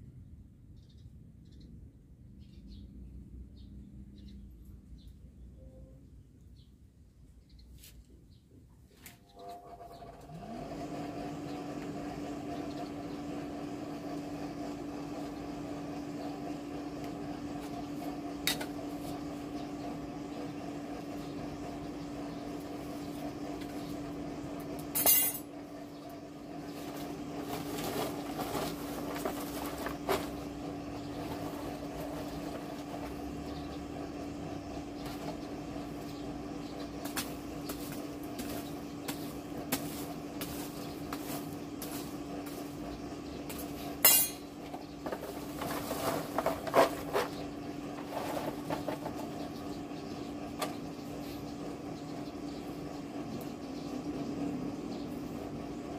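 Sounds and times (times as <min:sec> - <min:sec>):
forge blower humming: 0:09.3 - 0:55.9
metal clinking and scraping: 0:25.0 - 0:25.5, 0:44.0 - 0:44.5.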